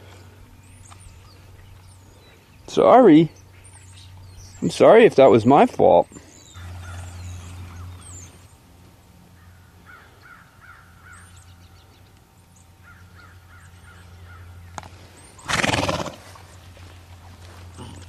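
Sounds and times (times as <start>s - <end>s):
crows cawing: 6.5s - 7.2s, 9.4s - 11.4s, 12.8s - 14.7s.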